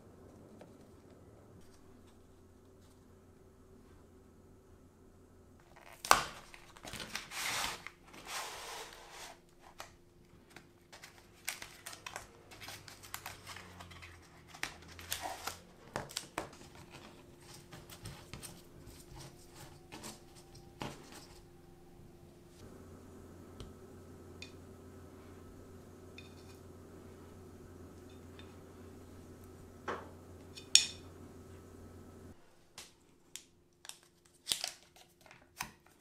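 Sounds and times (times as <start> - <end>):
foil crinkling and tearing: 5.6 - 9.9, 10.5 - 20.6, 33.9 - 36.0.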